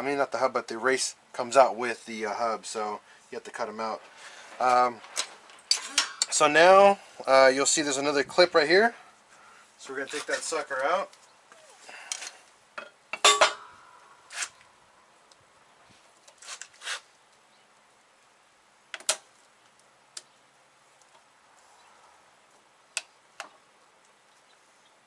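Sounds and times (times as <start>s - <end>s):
sharp metallic clanks: 5.6s - 6.5s, 12.8s - 13.9s.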